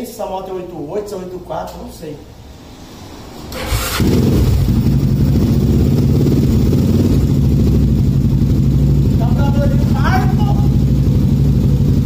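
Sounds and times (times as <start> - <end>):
motorcycle engine idling: 4.0 - 12.0.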